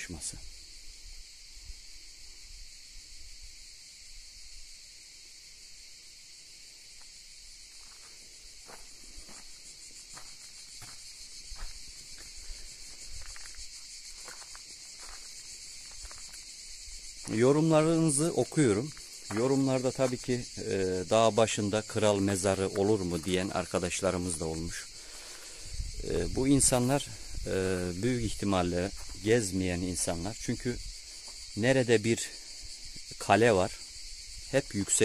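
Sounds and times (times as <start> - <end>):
insect chorus: 0.0 - 35.0
footsteps on gravel: 7.0 - 16.6, 17.2 - 20.6, 22.5 - 23.8, 28.8 - 29.3.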